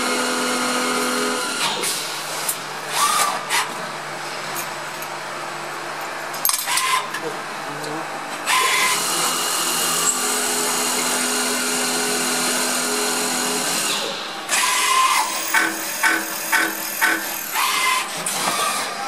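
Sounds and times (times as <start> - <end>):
lathe whirring: 8.4 - 19.0.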